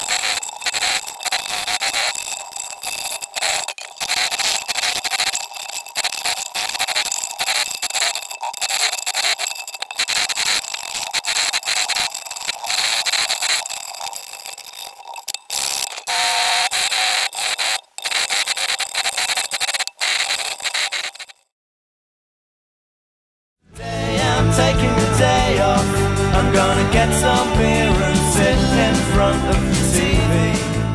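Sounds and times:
file scraping plastic: 0:00.0 - 0:21.4.

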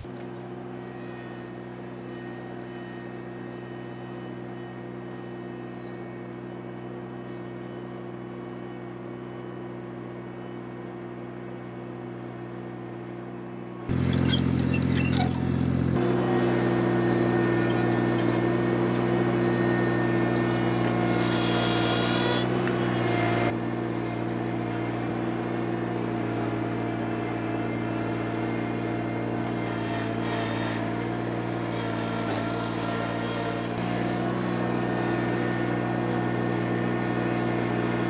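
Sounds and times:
tractor running: 0:00.0 - 0:38.0
power rake spinning through soil: 0:13.9 - 0:24.6, 0:25.9 - 0:38.0.

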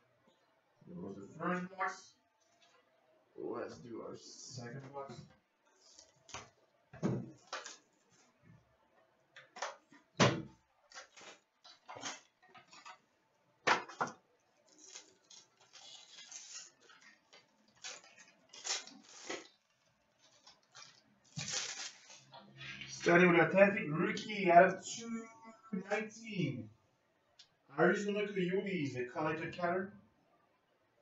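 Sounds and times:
wrapper crinkling: 0:14.6 - 0:22.4.

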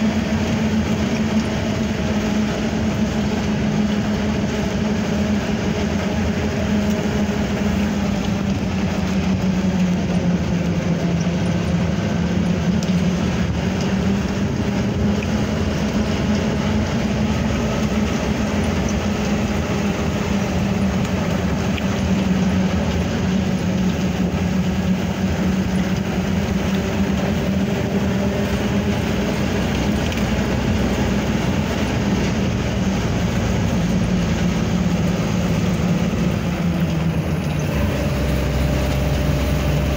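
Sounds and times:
road noise: 0:00.0 - 0:39.9
vehicle engine humming: 0:00.0 - 0:39.9.

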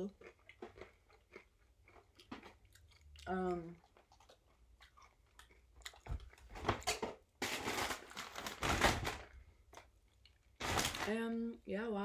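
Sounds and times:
packaging crinkling: 0:06.5 - 0:09.4, 0:10.6 - 0:11.2.

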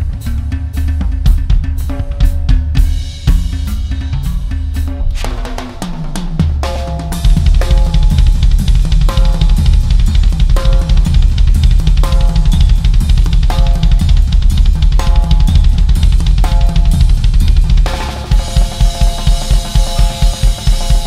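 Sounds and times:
fast bass drum pattern: 0:00.0 - 0:21.0
cymbal wash: 0:02.9 - 0:21.0
ringing drum hit: 0:03.4 - 0:17.6.

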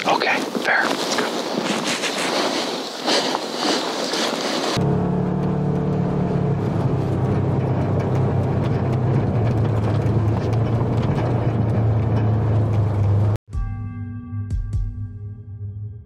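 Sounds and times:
atv engine running: 0:04.6 - 0:13.4.

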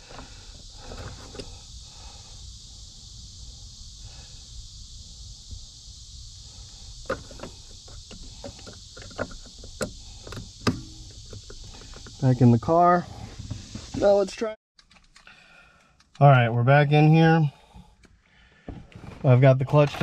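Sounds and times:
faint steady hiss: 0:00.0 - 0:14.6.

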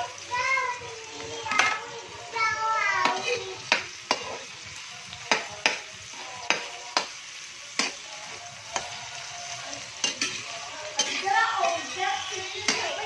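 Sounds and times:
onions and tomatoes sizzling in oil: 0:00.0 - 0:13.0
metal spatula scraping a wok: 0:07.7 - 0:13.0.

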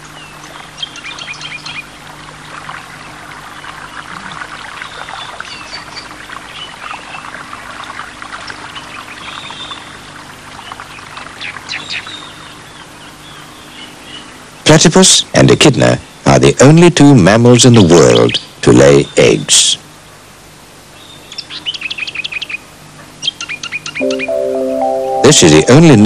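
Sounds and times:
water splashing and trickling: 0:02.2 - 0:11.7.

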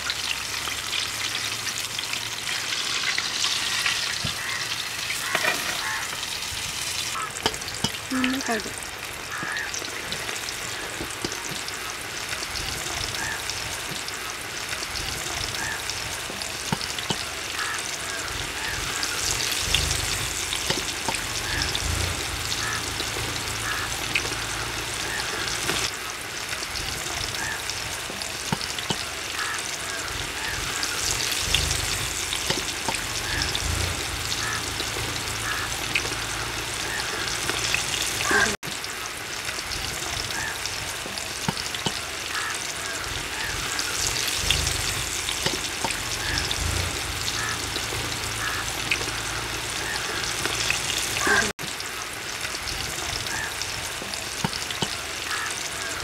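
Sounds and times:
chicken deep-frying in oil: 0:00.0 - 0:56.0.

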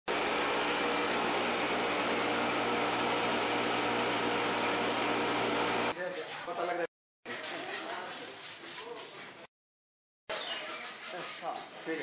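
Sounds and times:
electric motor humming: 0:00.1 - 0:05.9.

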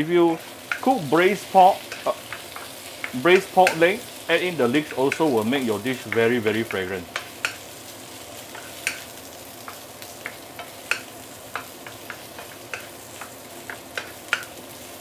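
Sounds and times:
food sizzling in a wok: 0:00.0 - 0:15.0
spatula tapping and scraping pan: 0:01.8 - 0:03.9, 0:06.0 - 0:07.7, 0:08.4 - 0:14.8.

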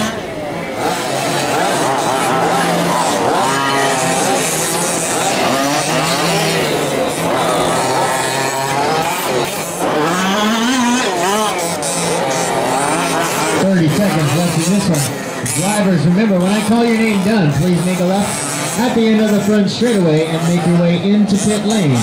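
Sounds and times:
small two-stroke engines racing: 0:00.0 - 0:22.0.

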